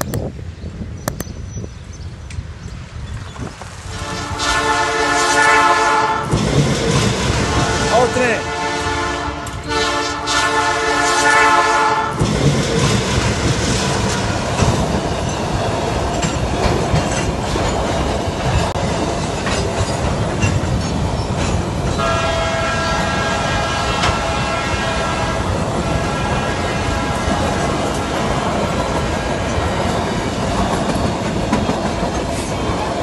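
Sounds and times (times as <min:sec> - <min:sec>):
freight train rumbling and clacking: 0:00.0 - 0:33.0
locomotive horn: 0:03.8 - 0:06.3, 0:07.2 - 0:12.2, 0:22.0 - 0:28.0.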